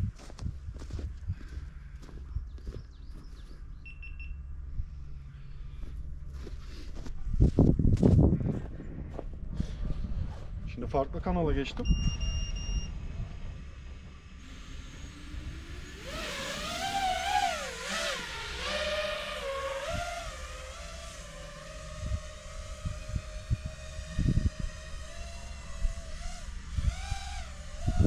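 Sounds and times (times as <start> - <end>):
drone motors whining: 11.6 - 28.0.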